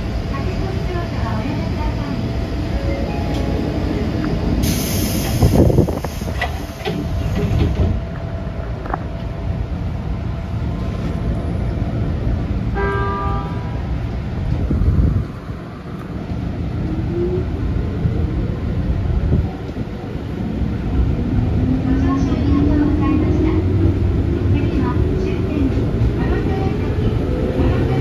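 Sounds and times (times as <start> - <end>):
electric train rumble and rail noise: 0.0 - 28.0
passing freight train rush: 0.0 - 28.0
train horn blast: 12.7 - 13.8.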